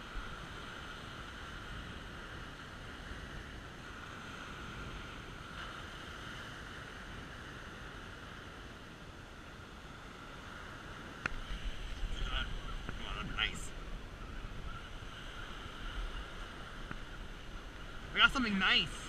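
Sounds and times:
small waves washing on sand: 0.0s - 19.0s
wind buffeting microphone: 10.9s - 19.0s
faint high hum: 11.2s - 19.0s.

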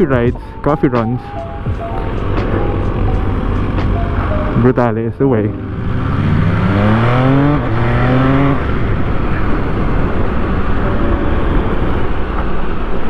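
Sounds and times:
wind and road noise: 0.0s - 13.0s
motorcycle engine accelerating: 1.8s - 4.8s, 5.5s - 13.0s.

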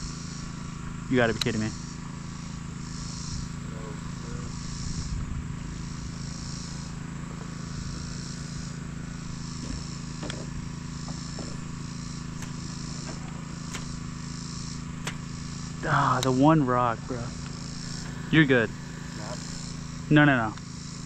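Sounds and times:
insects chirping: 0.0s - 21.0s
steady low hum: 0.0s - 21.0s
sharp ticks: 1.1s - 3.5s, 9.3s - 21.0s.

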